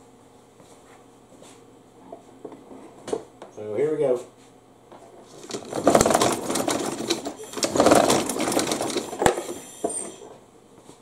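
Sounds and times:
mower engine cranking with recoil starter: 5.3s - 10.2s.

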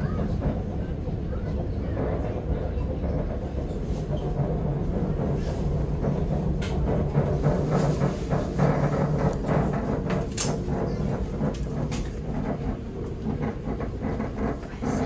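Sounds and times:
train rumble and motor hum: 0.0s - 15.0s
sharp clicks and knocks: 3.1s - 15.0s.

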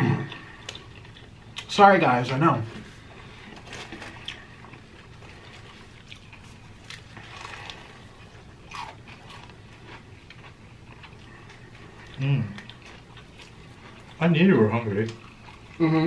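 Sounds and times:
crunching fried chicken: 3.4s - 15.8s.

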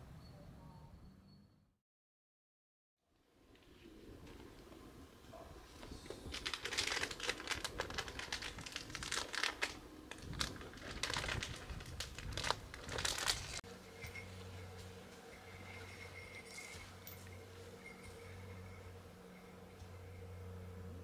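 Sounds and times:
footsteps crunching dry leaves: 5.9s - 18.5s.

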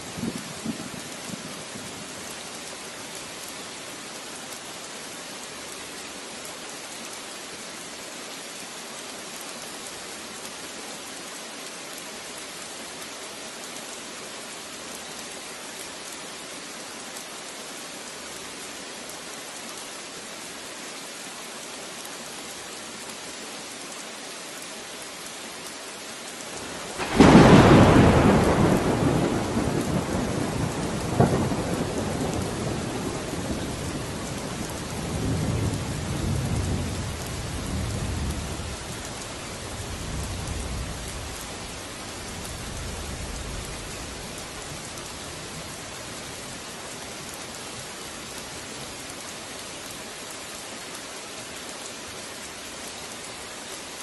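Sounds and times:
rain hissing: 0.0s - 54.0s
thunder clap rumbling: 26.9s - 38.8s.

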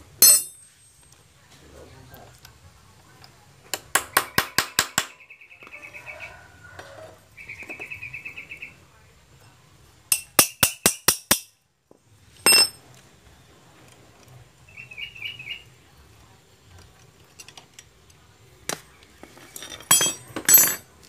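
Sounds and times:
hammer striking metal punch: 0.2s - 0.6s, 10.1s - 11.5s, 12.5s - 12.8s.

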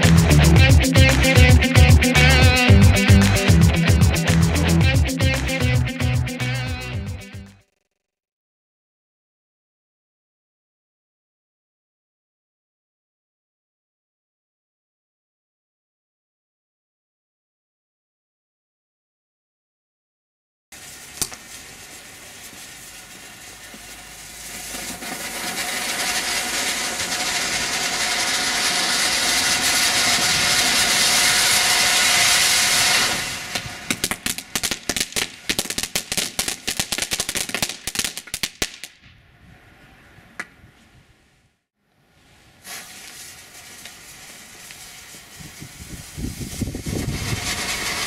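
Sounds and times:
firework crackling: 20.7s - 39.0s, 42.6s - 48.0s
firework spark spray hissing: 20.8s - 38.9s, 42.6s - 48.0s.

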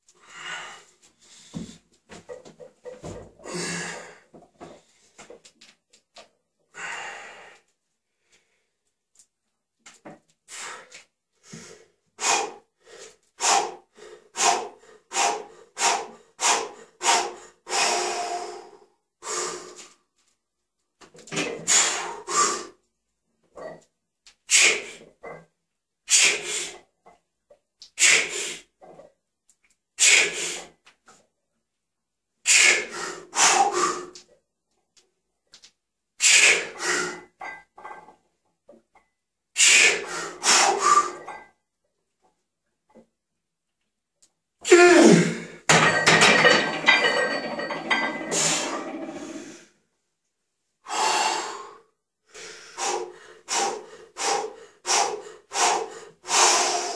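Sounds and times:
person breathing forcefully: 10.5s - 19.7s, 32.5s - 34.1s, 39.6s - 41.2s, 50.8s - 56.9s.

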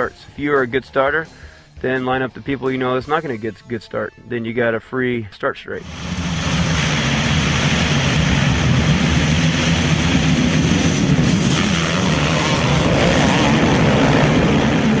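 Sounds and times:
motocross bikes revving: 5.8s - 15.0s.

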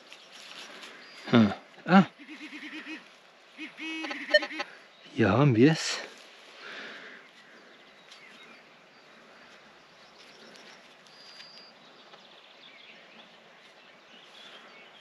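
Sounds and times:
bird chirping: 7.2s - 15.0s.

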